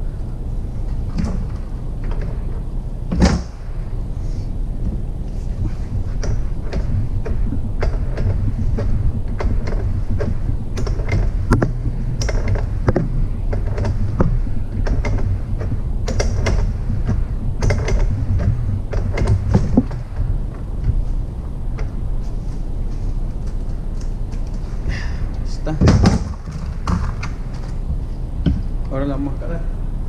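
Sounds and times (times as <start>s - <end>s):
steady low hum: 0.0s - 30.0s
metal clicks and knocks: 4.8s - 21.1s, 25.8s - 28.7s.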